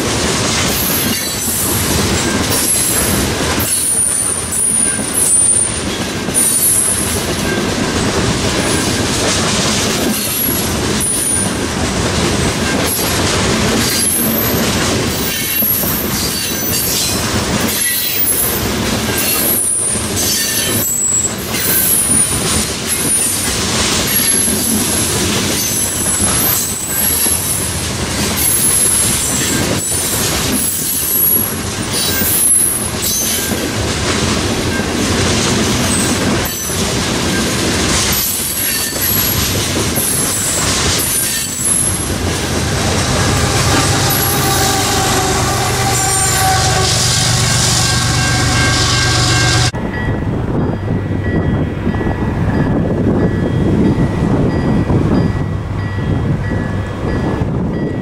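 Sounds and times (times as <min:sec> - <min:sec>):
train wheels clacking on track: 0:00.0 - 0:49.8
wheels squealing: 0:40.0 - 0:49.7.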